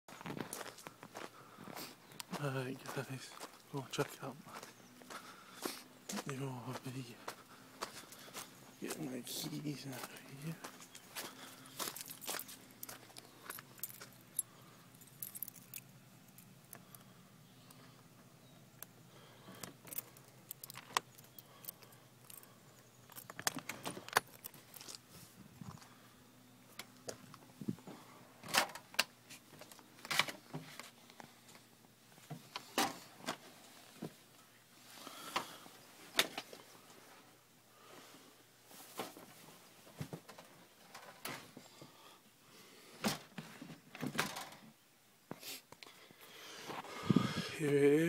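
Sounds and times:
keys jangling and clicking: 11.8s - 16.5s, 19.8s - 25.0s.

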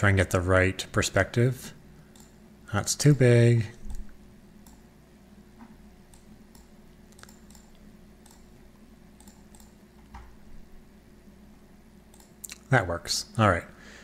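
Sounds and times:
low steady hum: 0.0s - 14.0s
computer mouse clicks: 2.1s - 2.4s, 3.8s - 4.8s, 6.1s - 8.5s, 9.2s - 10.3s, 12.1s - 12.7s.

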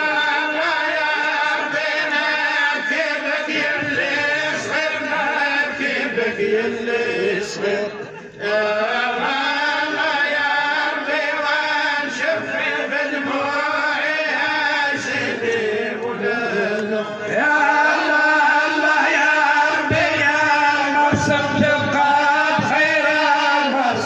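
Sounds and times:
men chanting: 0.0s - 24.0s.

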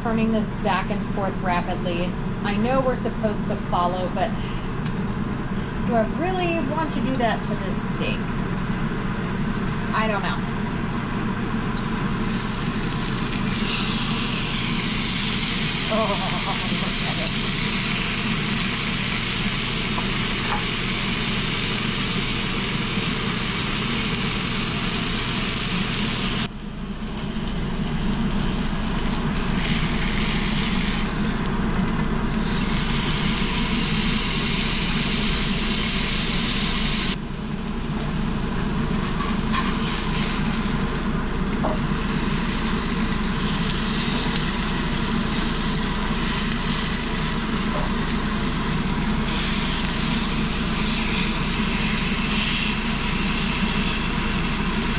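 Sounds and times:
steak sizzling in a skillet: 11.7s - 26.5s, 27.3s - 37.1s, 38.2s - 54.9s.

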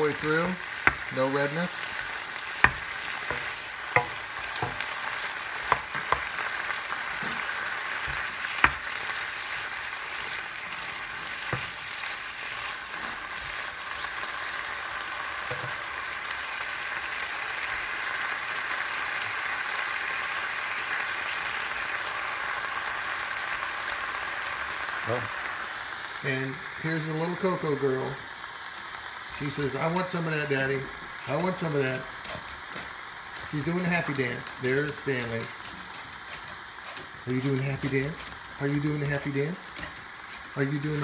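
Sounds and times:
meat sizzling in a frying pan: 0.0s - 41.0s
wooden spoon knocking on pan: 0.8s - 1.1s, 2.0s - 6.4s, 7.2s - 9.0s, 15.5s - 15.8s.

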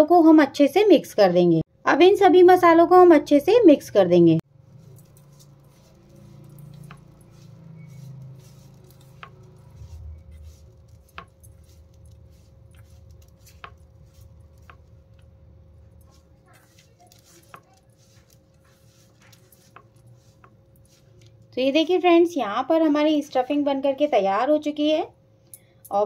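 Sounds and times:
hand tossing food in bowl: 4.6s - 22.1s.

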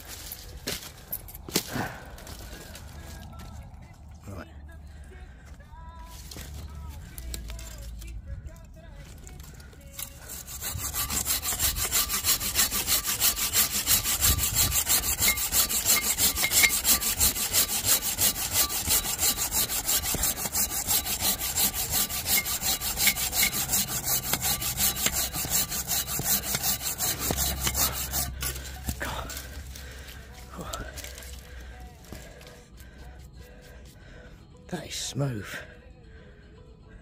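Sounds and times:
pruning saw cutting wood: 9.3s - 33.6s.

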